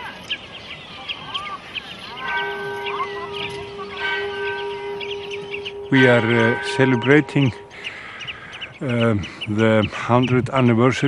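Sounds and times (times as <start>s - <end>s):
birds calling and chirping: 0.0s - 11.0s
long steady held tone: 2.1s - 9.2s.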